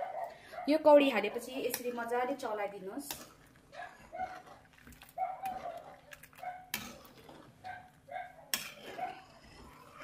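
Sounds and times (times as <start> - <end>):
ladle clinking and scraping on pot: 3.1 - 7.9, 8.5 - 10.0.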